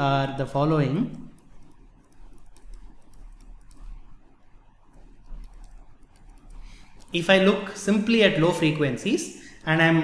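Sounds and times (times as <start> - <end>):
mains hum: 0.0 - 10.0
stylus tapping on pen tablet: 1.1 - 4.2, 4.9 - 7.1.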